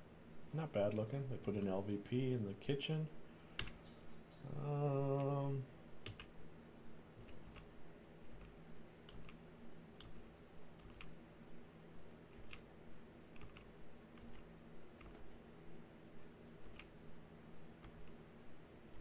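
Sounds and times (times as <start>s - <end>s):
computer mouse clicking: 3.6s - 4.0s, 6.0s - 6.3s, 7.2s - 7.7s, 8.3s - 9.4s, 10.0s - 10.2s, 10.8s - 11.2s, 12.3s - 12.7s, 13.3s - 15.2s, 16.6s - 17.0s
man humming: 4.4s - 5.7s.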